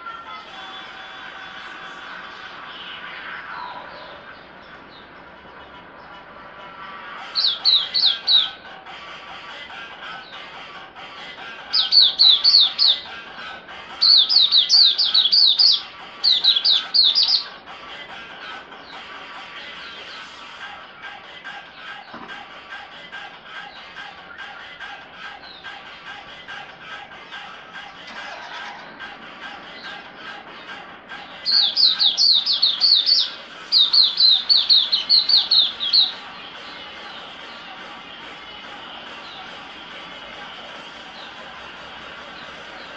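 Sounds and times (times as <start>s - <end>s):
faint background music: 0.0s - 42.9s
songbird singing: 0.0s - 42.9s
bird chirping: 2.3s - 6.3s, 6.9s - 8.7s, 11.2s - 17.6s, 18.4s - 20.5s, 25.3s - 26.1s, 28.5s - 38.2s, 39.0s - 39.7s, 41.1s - 41.6s, 42.2s - 42.9s.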